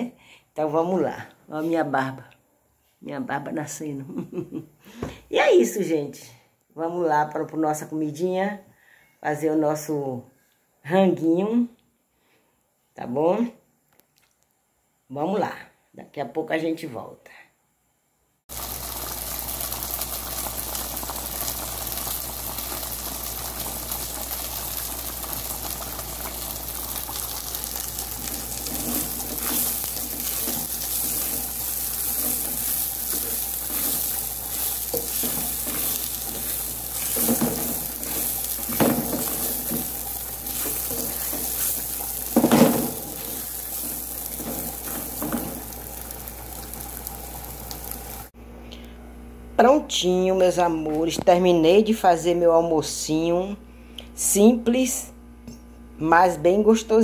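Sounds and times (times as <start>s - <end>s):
rice sizzling in hot oil: 18.5s - 48.4s
spatula scraping pan: 27.7s - 45.6s
spatula knocking pan: 32.0s - 43.2s.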